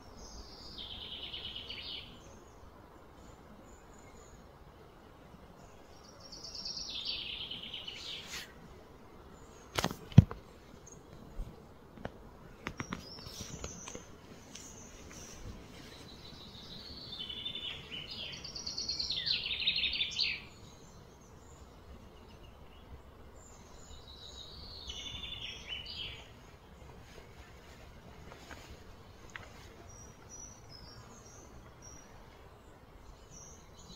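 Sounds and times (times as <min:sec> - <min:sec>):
bird singing trilling phrases: 0:00.2 - 0:02.6, 0:12.8 - 0:26.7, 0:29.1 - 0:33.9.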